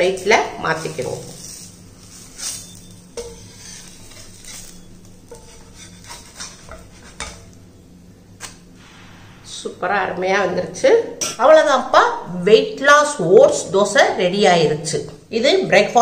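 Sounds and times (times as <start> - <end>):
faint sizzle: 0.0 - 16.0
steady low hum: 0.0 - 16.0
spatula scraping on iron griddle: 0.1 - 7.7.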